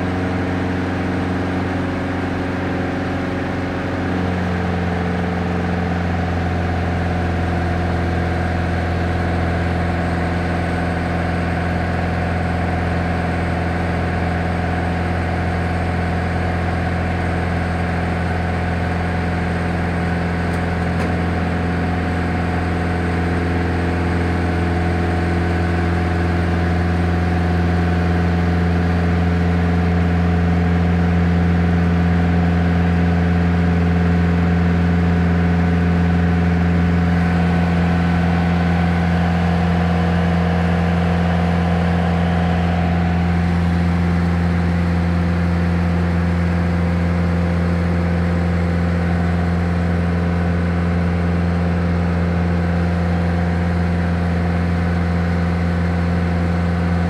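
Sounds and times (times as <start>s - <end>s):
propeller aircraft engine droning: 0.0s - 57.0s.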